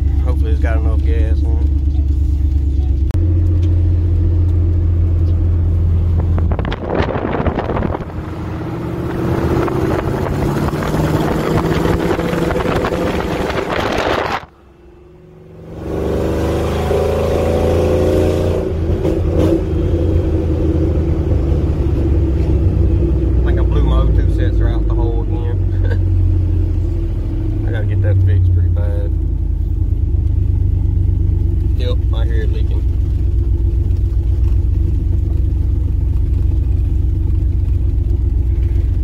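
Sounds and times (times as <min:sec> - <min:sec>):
car engine accelerating: 0:00.0 - 0:39.0
wind noise: 0:06.1 - 0:14.5.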